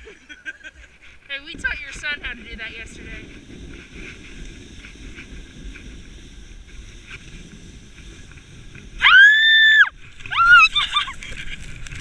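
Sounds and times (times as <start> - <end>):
sled scraping on snow: 0.0 - 9.2, 9.8 - 12.0
wind buffeting microphone: 0.0 - 12.0
girl screaming: 9.0 - 11.1.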